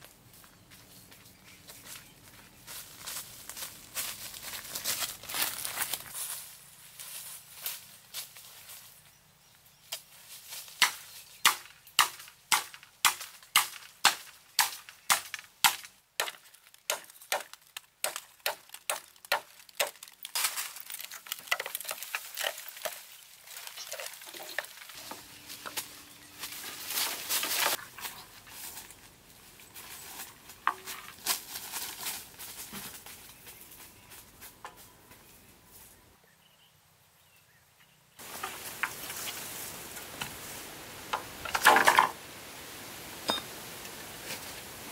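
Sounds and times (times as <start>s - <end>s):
crackling and rustling stems: 0.0s - 9.1s, 9.8s - 35.9s, 38.2s - 42.3s
machete chopping bamboo: 10.8s - 20.6s.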